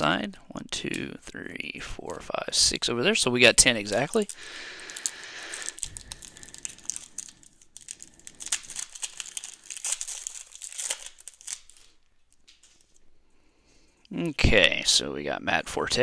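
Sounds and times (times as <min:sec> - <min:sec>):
plastic wrapper crinkling and tearing: 0:03.0 - 0:13.2.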